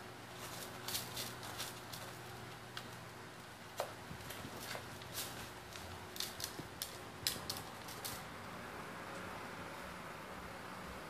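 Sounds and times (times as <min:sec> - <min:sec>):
bird claws scratching rice in plastic: 0:00.3 - 0:02.4.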